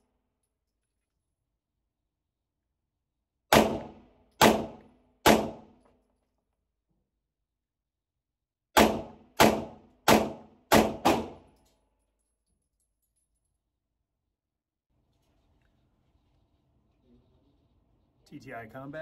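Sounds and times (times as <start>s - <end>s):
pistol shots echoing: 3.5s - 5.7s, 8.8s - 11.5s.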